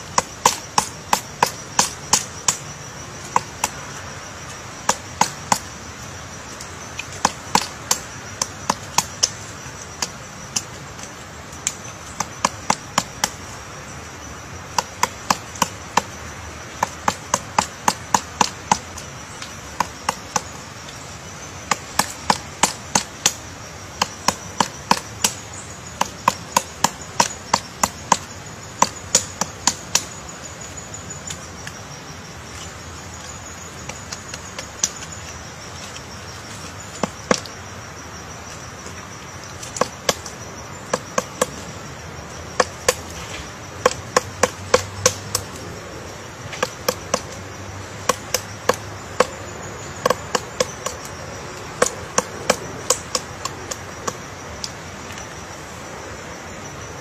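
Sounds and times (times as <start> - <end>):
woodpecker chiselling wood: 0.0 - 13.6, 14.5 - 55.4.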